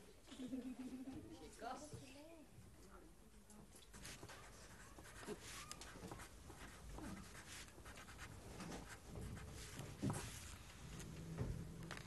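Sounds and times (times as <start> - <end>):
pencil scratching on paper: 3.9 - 10.6.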